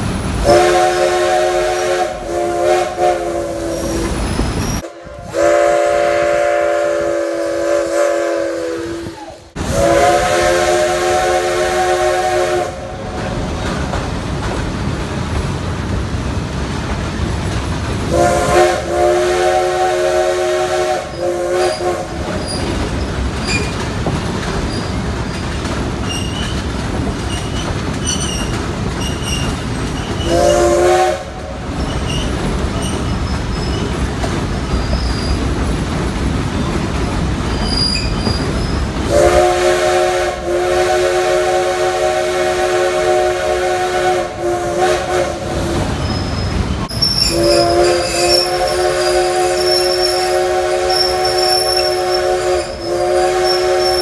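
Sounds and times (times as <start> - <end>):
train wheels rumbling on rails: 0.0 - 54.0
locomotive horn blasts: 0.4 - 4.2, 4.8 - 13.3, 18.1 - 22.2, 30.2 - 31.6, 39.1 - 46.0, 46.9 - 54.0.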